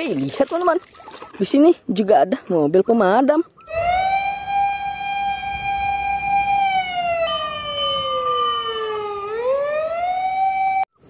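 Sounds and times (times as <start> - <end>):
fire engine siren wailing: 3.7 - 10.9
second higher siren tone: 3.7 - 10.9.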